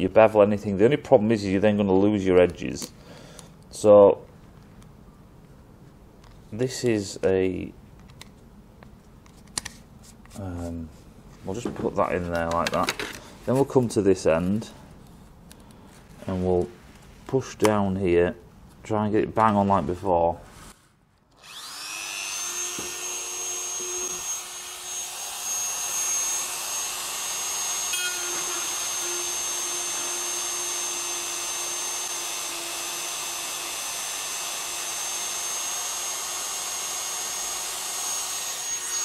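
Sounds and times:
rotary tool whining: 0:21.3 - 0:39.0.

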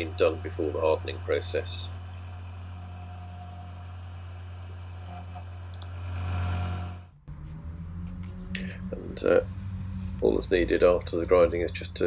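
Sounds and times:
grinder humming: 0:00.0 - 0:07.2.

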